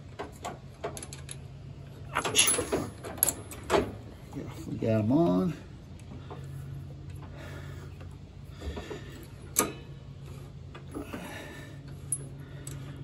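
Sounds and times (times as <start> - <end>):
steady low hum: 0.0 - 13.0
metallic clicks of brake hardware: 9.5 - 9.8.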